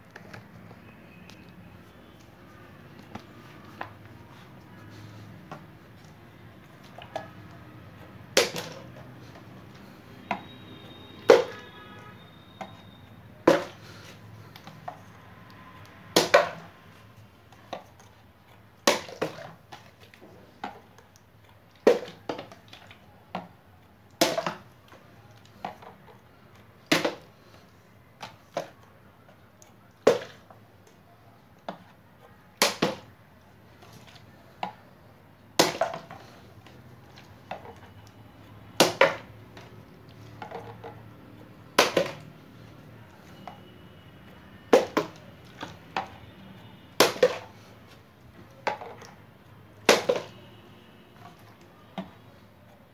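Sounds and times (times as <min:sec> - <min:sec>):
plastic bottle landing slap: 0:08.3 - 0:08.9, 0:11.3 - 0:11.6, 0:13.4 - 0:13.8, 0:16.2 - 0:16.7, 0:18.8 - 0:19.6, 0:21.8 - 0:22.5, 0:24.2 - 0:24.7, 0:26.9 - 0:27.3, 0:32.6 - 0:33.1, 0:35.6 - 0:36.2, 0:38.8 - 0:39.3, 0:41.7 - 0:42.3, 0:44.7 - 0:45.2, 0:47.0 - 0:47.5, 0:49.8 - 0:50.4.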